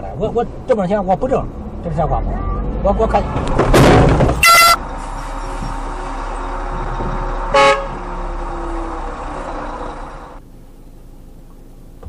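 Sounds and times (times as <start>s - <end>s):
car driving road noise: 0.0s - 12.0s
car horn toot: 4.4s - 4.8s, 7.5s - 8.0s.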